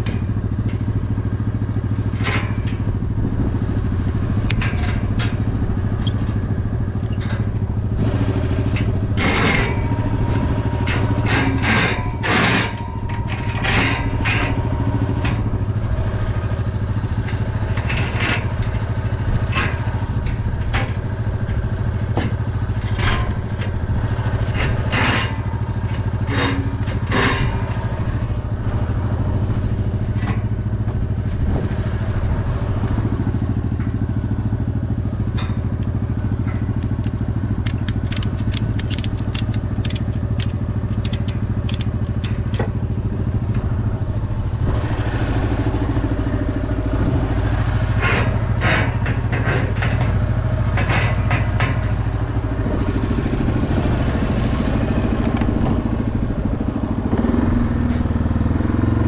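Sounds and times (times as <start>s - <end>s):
quad engine idling: 0.0s - 59.0s
ratchet strap clicking: 35.4s - 42.8s.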